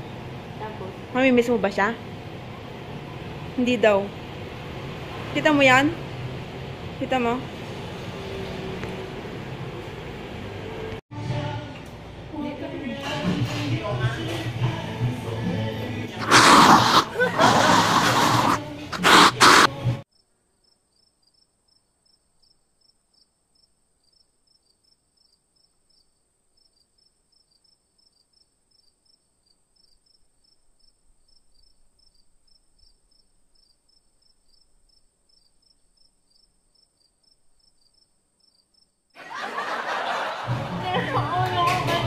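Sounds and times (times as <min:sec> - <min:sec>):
faint cricket chirping: 0:20.1 - 0:39.2.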